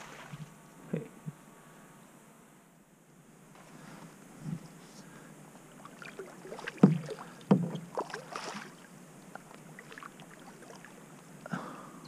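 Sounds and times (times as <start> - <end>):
water splashing and dripping: 5.8 - 10.9
paddle knocking on kayak hull: 6.7 - 8.2.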